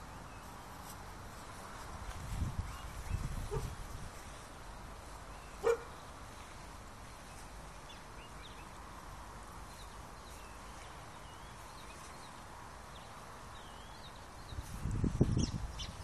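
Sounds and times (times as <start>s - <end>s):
birds chirping: 4.9s - 8.9s, 9.6s - 16.0s.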